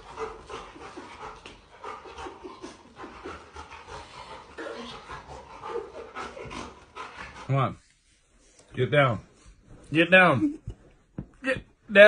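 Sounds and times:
dog panting quickly: 0:00.0 - 0:07.8.

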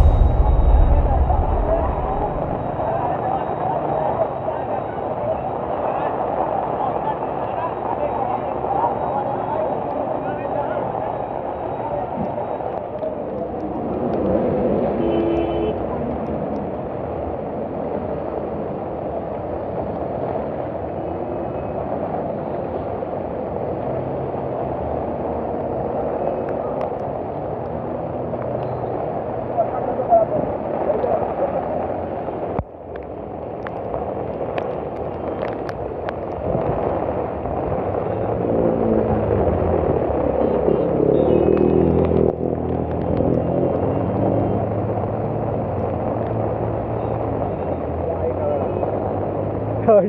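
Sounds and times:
heavy rain pouring: 0:00.0 - 0:03.6, 0:30.5 - 0:41.0
cars driving through water: 0:15.8 - 0:50.0.

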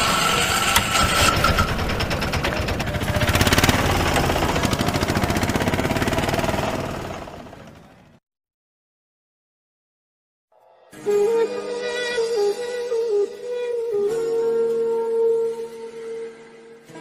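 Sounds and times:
motorcycle engine running: 0:00.0 - 0:08.2.

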